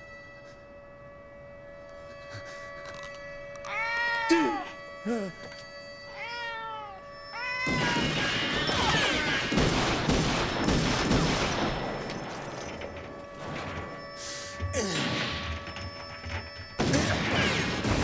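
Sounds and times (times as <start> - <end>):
sustained musical drone: 0.0 - 18.0
meow-like cries: 3.6 - 5.3, 6.1 - 9.6.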